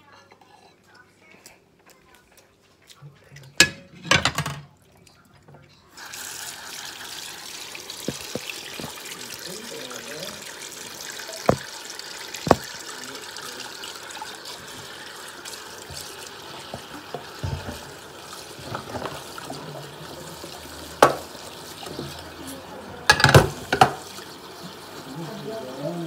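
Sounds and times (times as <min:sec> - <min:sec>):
dishes clinking together: 0:03.6 - 0:04.7, 0:23.1 - 0:24.0
tap running into steel sink: 0:08.0 - 0:09.0, 0:11.4 - 0:11.7, 0:12.4 - 0:12.8, 0:15.8 - 0:18.0, 0:21.0 - 0:22.2, 0:23.1 - 0:24.1.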